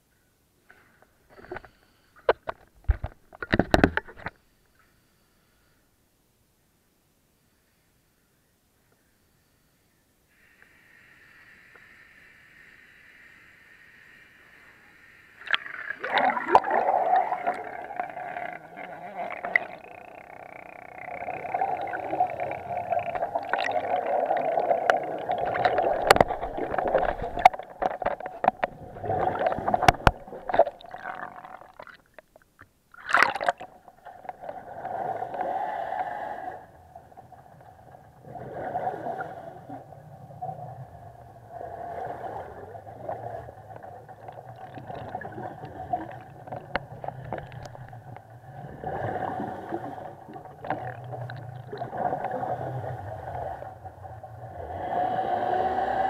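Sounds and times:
sharp clicks and knocks: 1.4 - 4.4, 25.6 - 28.8, 29.5 - 30.7
exhaled bubbles: 15.4 - 56.0
scuba regulator breathing: 16.0 - 31.6, 35.0 - 36.9.

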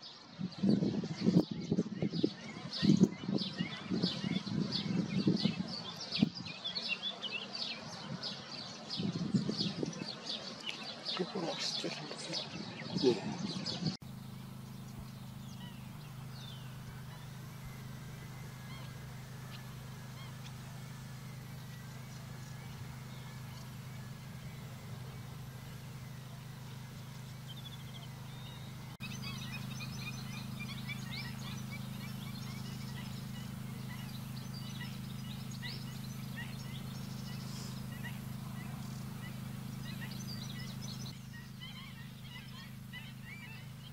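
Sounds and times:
flamingo flock gabbling: 13.1 - 43.9
high-pitched bird calls: 14.0 - 43.9.

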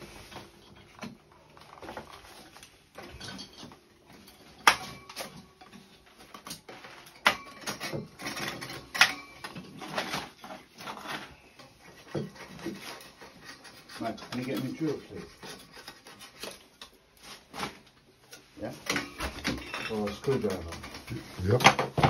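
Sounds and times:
hand tools and metal fittings clinking: 0.0 - 22.0
metal scraping: 6.7 - 17.8.

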